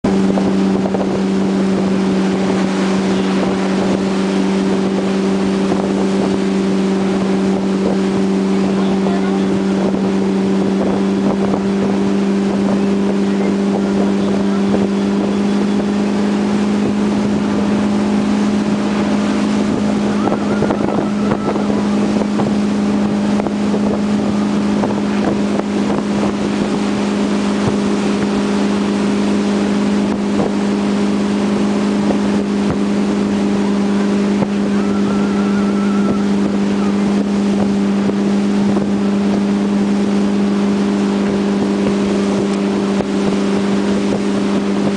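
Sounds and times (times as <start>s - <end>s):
boat engine droning: 0.0s - 44.9s
rushing water: 0.0s - 44.9s
wind noise on microphone: 0.0s - 44.9s.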